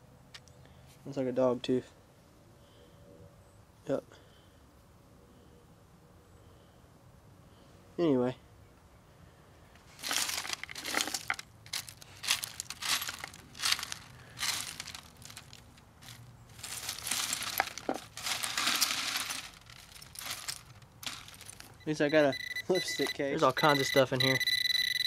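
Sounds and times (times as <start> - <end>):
hand raking dirt on wire screen: 9.9 - 22.3.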